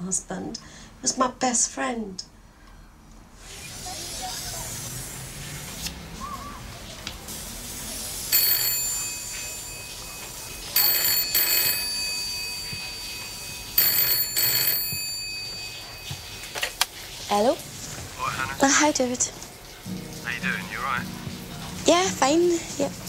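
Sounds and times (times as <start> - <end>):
telephone ringing: 8.3 - 17.0.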